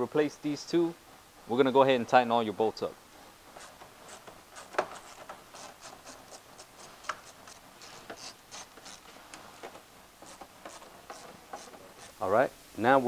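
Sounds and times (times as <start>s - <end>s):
hand ratchet clicking: 3.6s - 9.1s, 10.2s - 12.2s.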